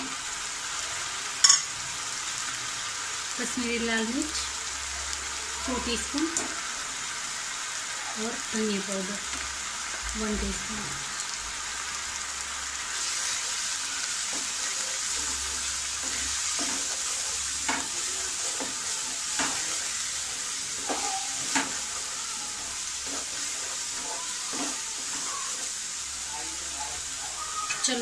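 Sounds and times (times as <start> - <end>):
food sizzling in oil: 0.0 - 28.0
spatula scraping and tapping pan: 14.3 - 19.9, 20.7 - 22.0.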